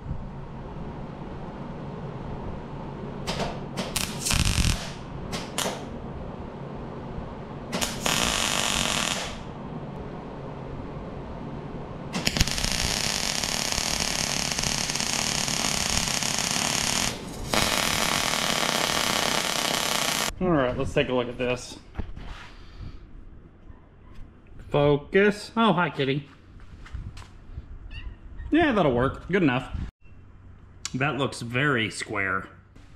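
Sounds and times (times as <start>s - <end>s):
welder arc crackling: 3.3s - 5.9s, 7.7s - 9.5s, 12.2s - 20.3s.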